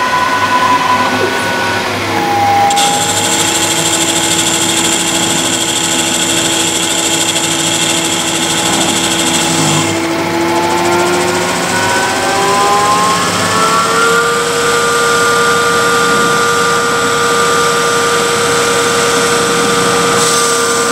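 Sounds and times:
lathe spindle motor whine: 0:00.0 - 0:20.9
cutting tool hiss: 0:02.7 - 0:10.0.

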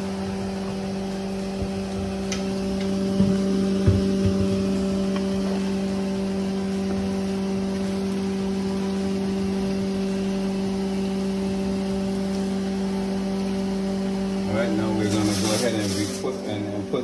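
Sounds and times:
loud steady hum: 0:00.0 - 0:17.0
constant hiss: 0:14.2 - 0:17.0.

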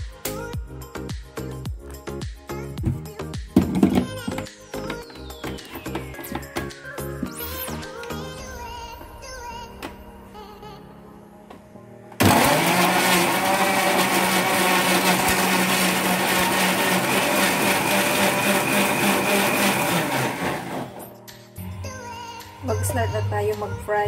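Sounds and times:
mixer grinder motor running: 0:12.2 - 0:21.1.

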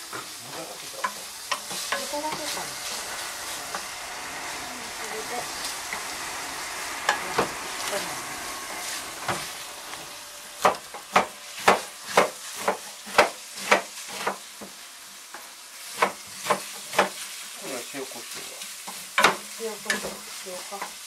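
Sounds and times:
meat sizzling in a frying pan: 0:00.0 - 0:21.0
knife chopping cabbage on board: 0:10.6 - 0:14.4.

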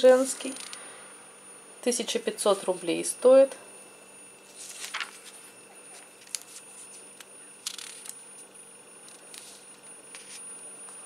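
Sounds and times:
high-pitched electronic whine: 0:00.0 - 0:11.0
glossy pages crinkling: 0:04.5 - 0:08.5, 0:09.1 - 0:10.5.

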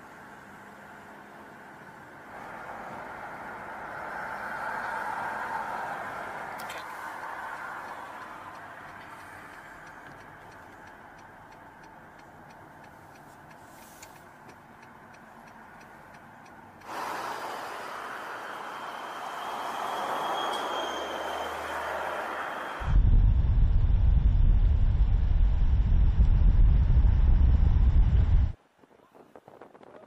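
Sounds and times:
city traffic rush: 0:00.0 - 0:23.0
faint rapid ticking: 0:07.6 - 0:16.9.

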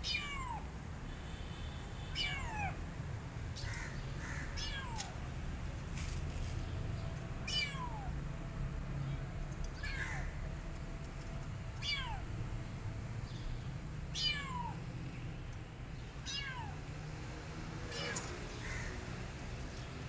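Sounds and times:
kitten meowing: 0:00.0 - 0:00.7, 0:02.1 - 0:02.8, 0:04.6 - 0:05.1, 0:07.4 - 0:08.1, 0:11.8 - 0:12.3, 0:14.1 - 0:14.8, 0:16.2 - 0:16.8, 0:17.9 - 0:18.3.

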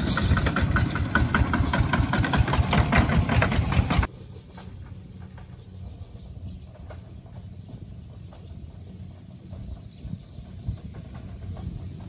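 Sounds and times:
diesel tractor engine knocking: 0:00.0 - 0:04.1, 0:06.5 - 0:12.0
distant tractor engines: 0:00.0 - 0:12.0.

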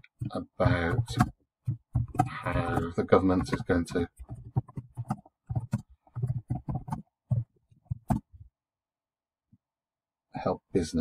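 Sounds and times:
typing on a computer keyboard: 0:00.2 - 0:08.3.

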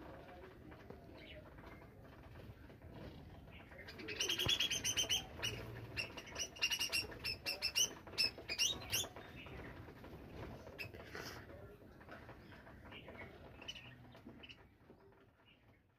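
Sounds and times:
wings fluttering: 0:00.0 - 0:15.8
budgerigars chirping: 0:03.7 - 0:09.5.

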